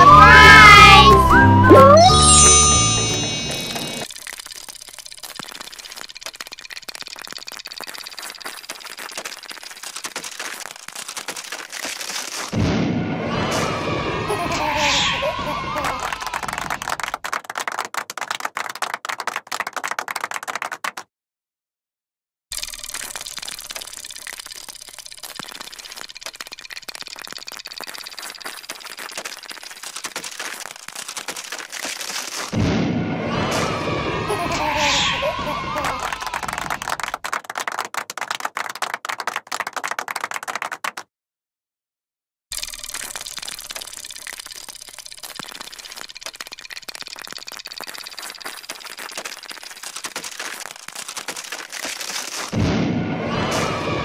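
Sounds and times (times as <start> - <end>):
cartoon rapid clicking and clattering: 3.0 - 12.6, 15.7 - 21.1, 22.5 - 32.6, 35.7 - 41.1, 42.5 - 52.6.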